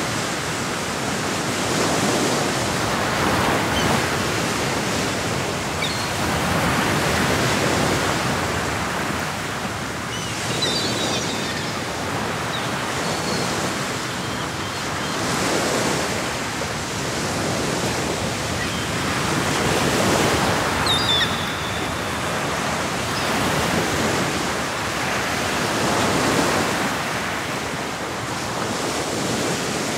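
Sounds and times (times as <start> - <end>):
surf breaking on rocky shore: 15.2 - 27.5.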